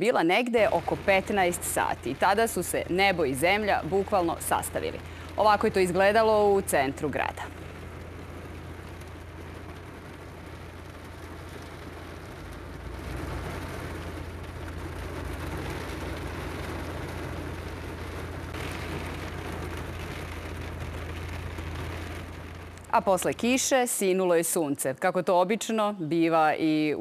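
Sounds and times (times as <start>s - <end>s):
heavy rain through window: 0.0s - 24.8s
low rumble: 0.6s - 23.7s.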